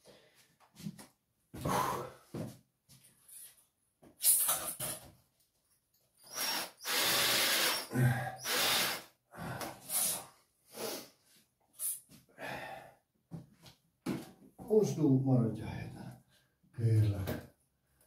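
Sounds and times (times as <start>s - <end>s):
power drill boring into wall: 6.2s - 9.1s.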